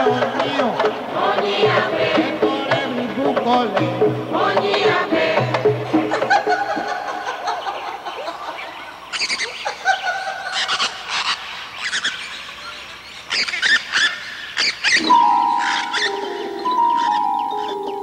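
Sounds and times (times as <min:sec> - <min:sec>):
mallet-struck music: 0:00.0 - 0:07.1, 0:15.0 - 0:18.0
birds chirping: 0:00.0 - 0:18.0.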